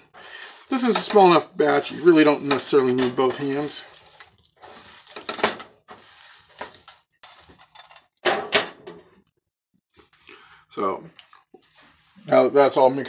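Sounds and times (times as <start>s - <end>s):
metal bowl scraping and knocking: 0.7s - 9.0s.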